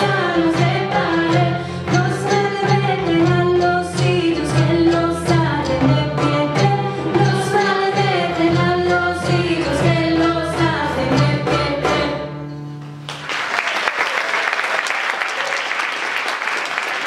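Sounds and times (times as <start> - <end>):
violin: 0.0 - 12.4
audience applause: 13.0 - 17.0.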